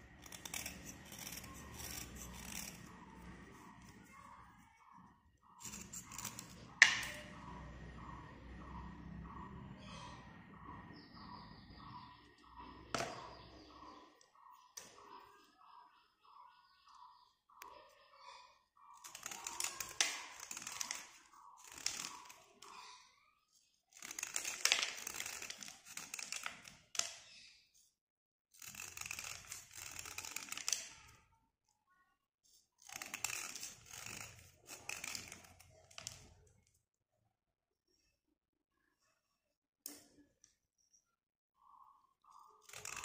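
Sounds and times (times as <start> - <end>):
slate pencil scraping: 0.0 - 4.2, 5.6 - 7.2, 19.0 - 23.0, 28.6 - 31.0, 32.8 - 36.2.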